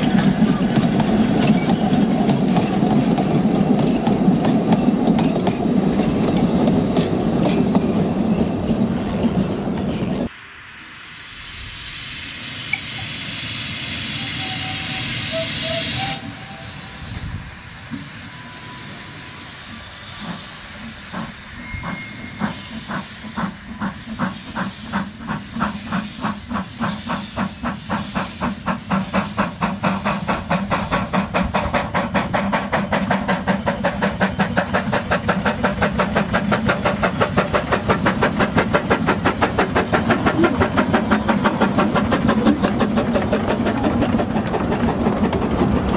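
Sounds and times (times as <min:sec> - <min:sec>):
steam locomotive exhaust beats: 0:00.0 - 0:45.9
steam hissing: 0:10.2 - 0:45.9.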